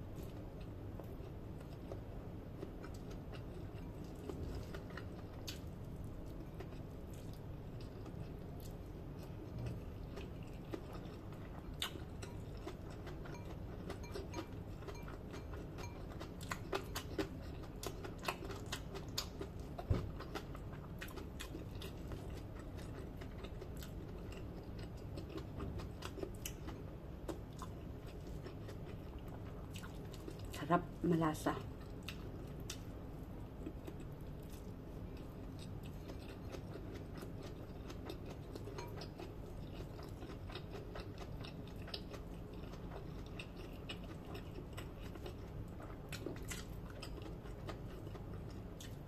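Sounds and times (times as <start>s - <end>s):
steady low hum: 0.0s - 49.0s
chewing mouth sounds: 33.6s - 49.0s.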